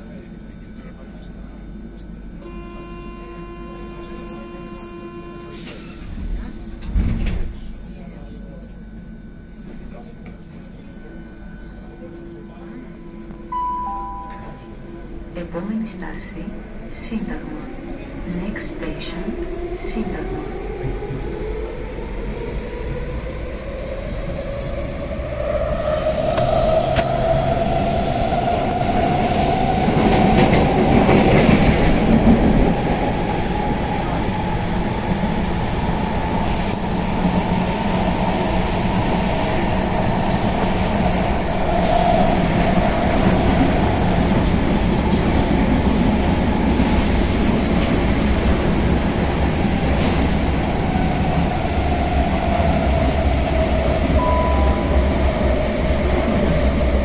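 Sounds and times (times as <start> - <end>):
train motor whine: 2.4 - 6.5
wheels rumbling on rails: 22.4 - 57.0.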